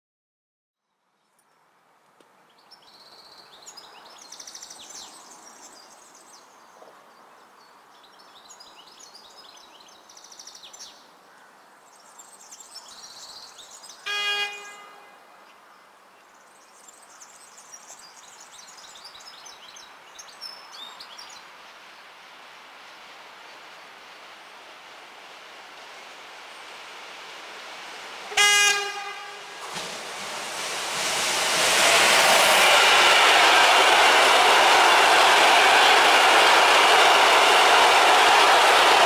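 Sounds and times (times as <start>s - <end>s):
locomotive horn blast: 14.1s - 15.2s, 28.3s - 29.7s.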